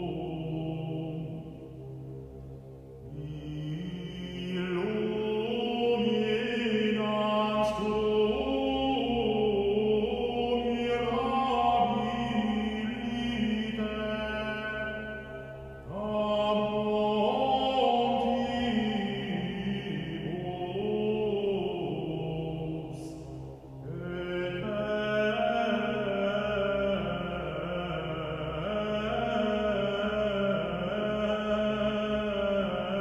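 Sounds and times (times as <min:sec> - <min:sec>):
chanted prayer singing: 0:00.0 - 0:33.0
steady low drone: 0:00.0 - 0:33.0.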